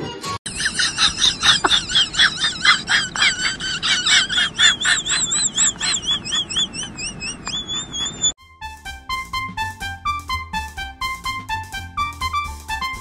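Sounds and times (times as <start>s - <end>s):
dog whining yips: 3.8s - 8.4s.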